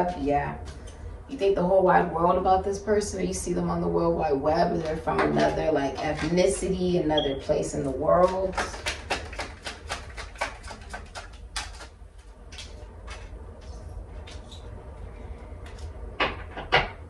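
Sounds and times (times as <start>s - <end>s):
steady low hum: 0.0s - 17.0s
cards shuffled by hand: 8.2s - 12.0s.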